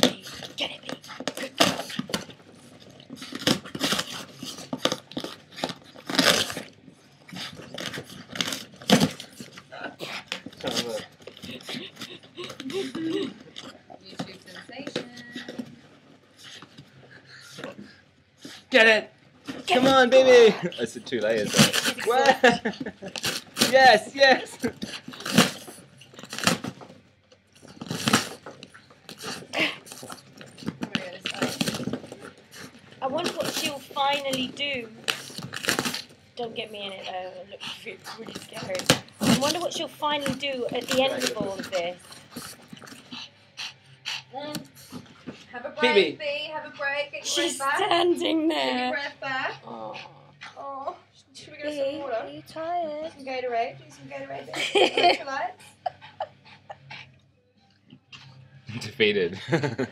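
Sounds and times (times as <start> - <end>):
dog chewing cardboard: 0.0 - 46.0
cardboard ripping: 3.1 - 6.7, 7.5 - 9.5, 21.3 - 22.4, 23.0 - 24.0, 24.6 - 26.9, 27.6 - 36.2, 38.2 - 42.7.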